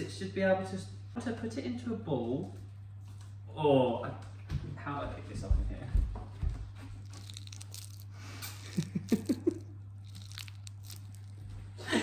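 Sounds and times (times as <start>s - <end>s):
steady low hum: 0.0s - 12.0s
hands squeezing sticky dough: 6.8s - 11.7s.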